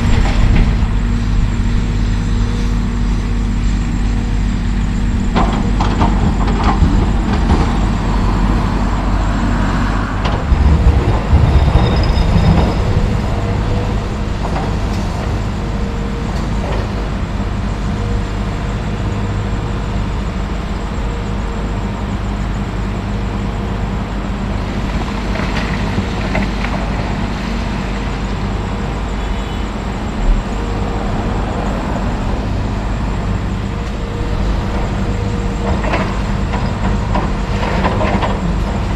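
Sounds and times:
diesel excavator running: 0.0s - 38.9s
dump truck running: 0.0s - 38.9s.

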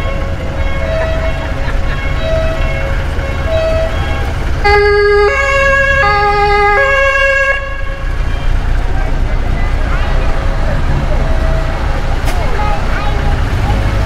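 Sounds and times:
two-tone emergency vehicle horn: 0.0s - 8.7s
low vehicle engine rumble: 0.0s - 14.0s.

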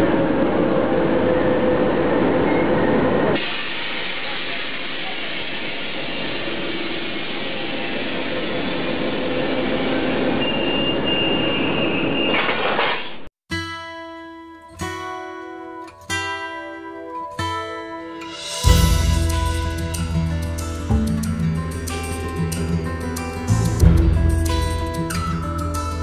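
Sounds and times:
diesel locomotive engine running: 22.6s - 25.8s.

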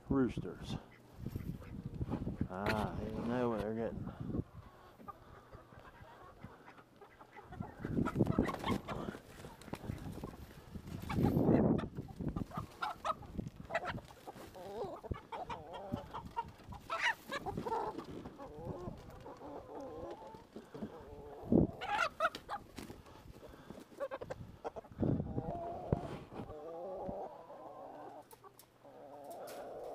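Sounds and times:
chickens clucking and squawking: 0.3s - 29.9s.

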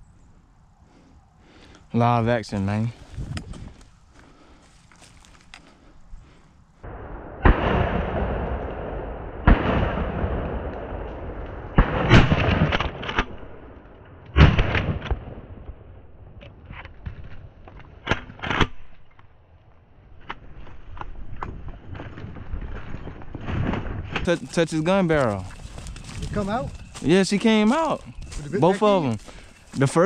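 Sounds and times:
shotgun shots: 6.9s - 13.7s.

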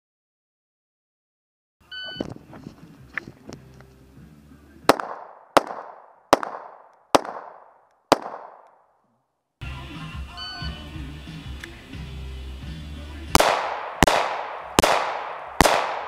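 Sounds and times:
pistol shots with echo: 4.9s - 8.8s, 13.3s - 16.0s.

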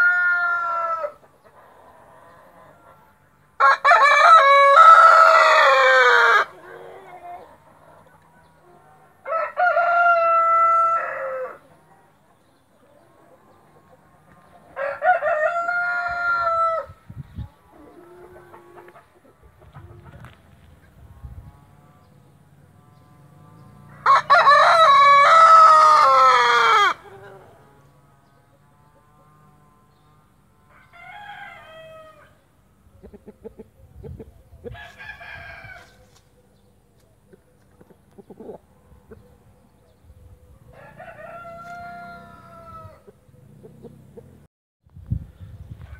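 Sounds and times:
rooster crowing: 0.0s - 1.2s, 3.6s - 7.1s, 9.0s - 11.7s, 14.8s - 17.0s, 23.9s - 27.4s, 30.7s - 32.4s, 34.7s - 36.0s, 40.7s - 43.1s.

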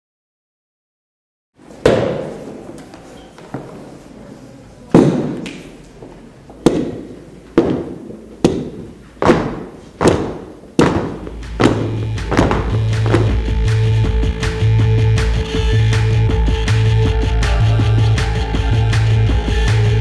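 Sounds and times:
shoes stamping on a wooden floor: 6.5s - 13.5s
music with steady tones: 11.0s - 20.0s.

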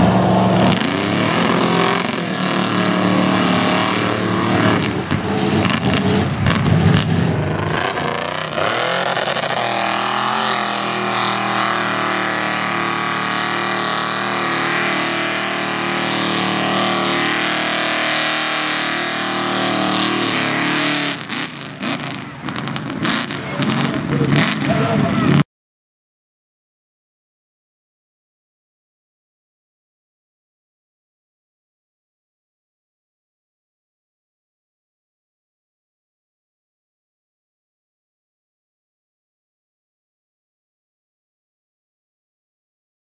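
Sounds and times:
truck engine revving hard: 0.0s - 25.4s.

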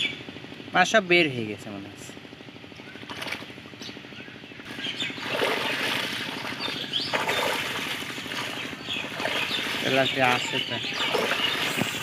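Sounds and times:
low engine hum: 0.0s - 12.0s
water splashing and sloshing: 3.0s - 3.6s, 4.7s - 12.0s.

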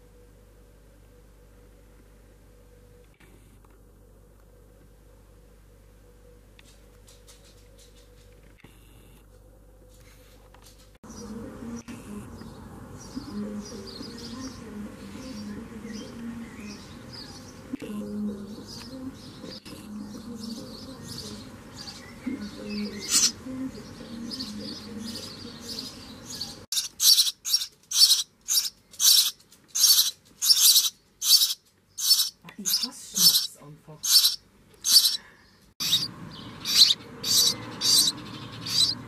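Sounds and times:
nestlings begging calls: 12.1s - 39.0s.

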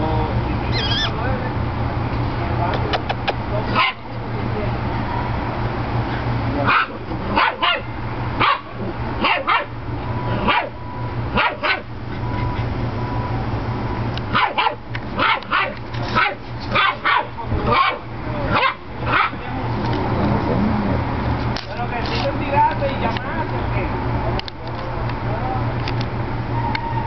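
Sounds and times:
dog barking and yipping: 3.8s - 4.1s, 6.7s - 9.8s, 10.4s - 10.8s, 11.4s - 12.7s, 14.3s - 19.4s.

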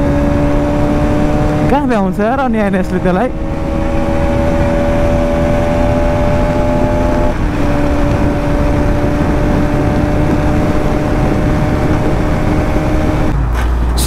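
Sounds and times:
motorcycle engine running: 0.0s - 14.0s
wind noise on microphone: 3.3s - 14.0s.

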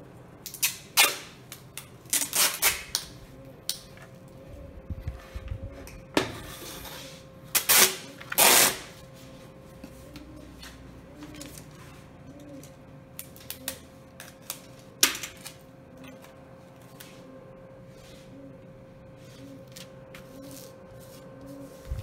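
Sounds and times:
tape tearing snap: 0.4s - 3.9s, 7.6s - 8.9s.

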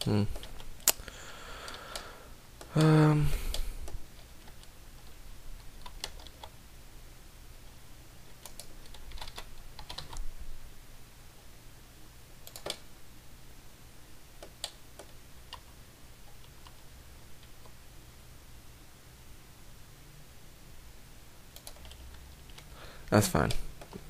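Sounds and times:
faint low hum: 0.0s - 24.0s
keyboard and mouse clicks: 1.7s - 6.6s, 8.4s - 10.3s, 12.4s - 12.8s, 21.5s - 22.7s.

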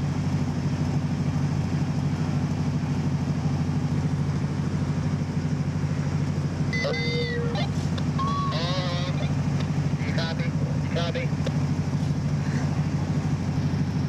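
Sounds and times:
car engine idling: 0.0s - 14.0s.

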